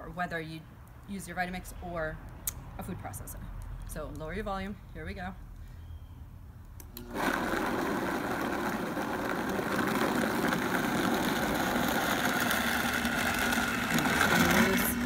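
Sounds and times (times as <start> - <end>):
blender motor running: 7.0 - 15.0.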